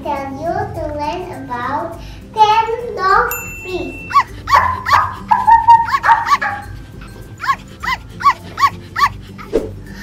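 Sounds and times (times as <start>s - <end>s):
dog barking: 4.1s - 6.8s, 7.4s - 9.5s.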